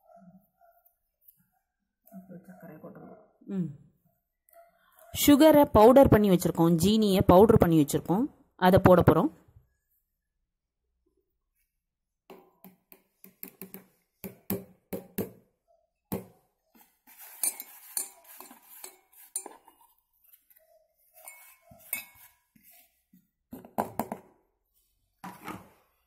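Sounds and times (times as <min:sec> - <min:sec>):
rustling and scraping: 0:16.7 - 0:23.3.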